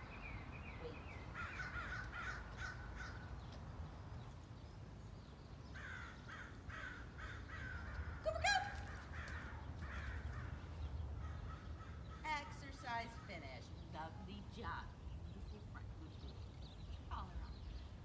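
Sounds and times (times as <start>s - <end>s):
crows cawing: 1.3s - 3.4s, 5.8s - 12.3s.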